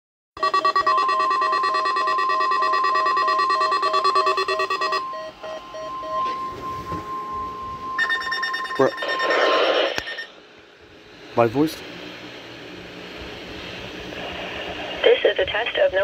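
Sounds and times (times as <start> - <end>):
rapid electronic beeps: 0.4 - 7.4, 8.0 - 10.4
steady warning alarm tone: 0.4 - 13.2.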